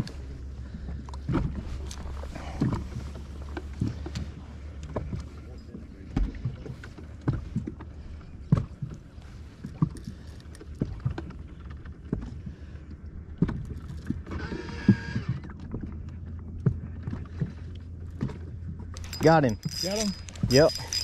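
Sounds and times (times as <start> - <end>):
steady low hum: 0.0 - 13.4
waves slapping boat hull: 0.0 - 18.9.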